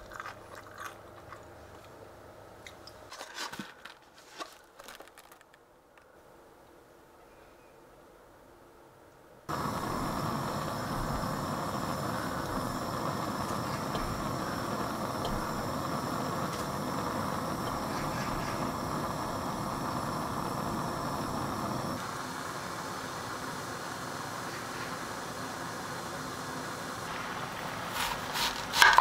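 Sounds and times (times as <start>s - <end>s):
gas stove rushing: 9.5s - 29.0s.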